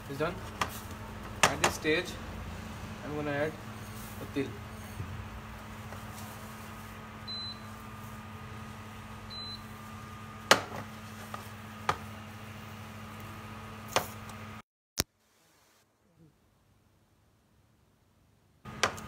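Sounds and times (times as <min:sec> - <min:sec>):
electrical hum: 0:00.0 - 0:14.6.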